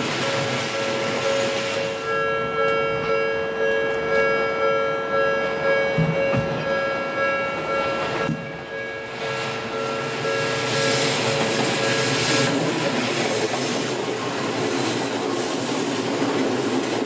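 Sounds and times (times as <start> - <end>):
level crossing warning bell: 0.0 - 11.1, 11.8 - 12.6
passing train: 0.0 - 17.0.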